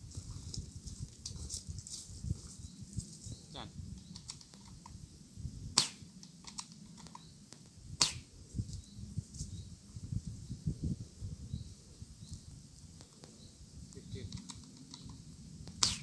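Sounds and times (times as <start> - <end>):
airsoft rifle shots: 5.8 - 6.7, 8.0 - 8.3, 15.7 - 16.0
faint clicks: 14.2 - 16.0.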